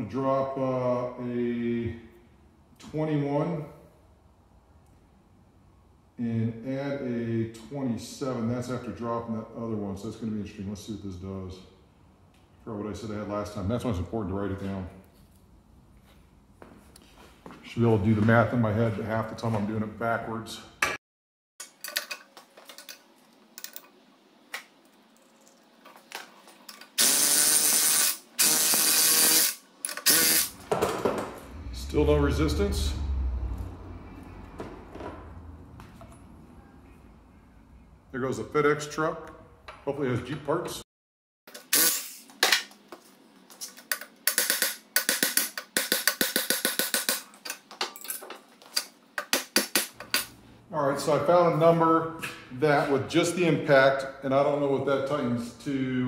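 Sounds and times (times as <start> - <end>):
electric impact wrench bursts: 27.0 - 30.8, 41.6 - 42.3
metal parts clicking and knocking: 43.6 - 50.3
impact wrench rattling: 43.9 - 47.3.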